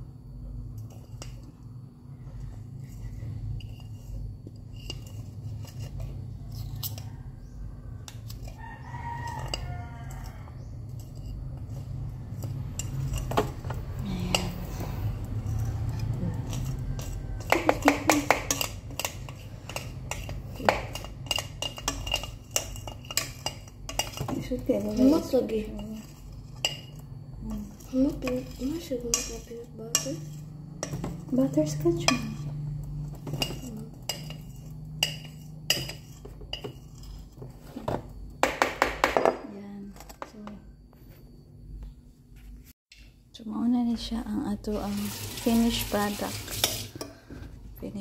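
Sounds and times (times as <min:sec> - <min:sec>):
metal spoon scraping batter in bowl: 0:02.3 - 0:37.8, 0:44.8 - 0:47.2
rooster crowing: 0:06.8 - 0:10.8, 0:16.2 - 0:17.9.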